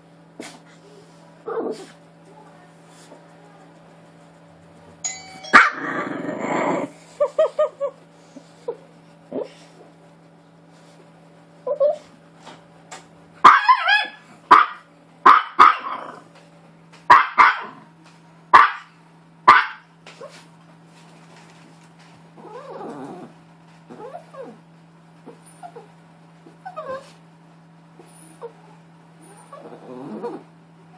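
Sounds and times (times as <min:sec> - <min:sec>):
small dog barking: 0:05.5 - 0:06.0, 0:13.4 - 0:16.2, 0:17.1 - 0:17.8, 0:18.5 - 0:18.9, 0:19.5 - 0:19.9.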